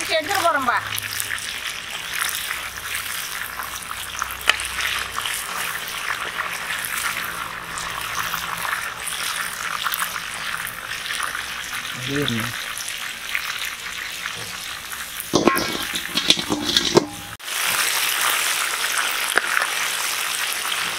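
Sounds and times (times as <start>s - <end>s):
fish deep-frying in bubbling oil: 0.0s - 20.9s.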